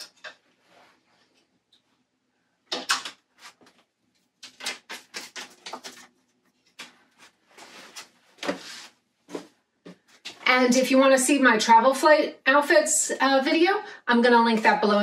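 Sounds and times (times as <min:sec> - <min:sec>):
fabric rustling: 0:06.7 - 0:10.5.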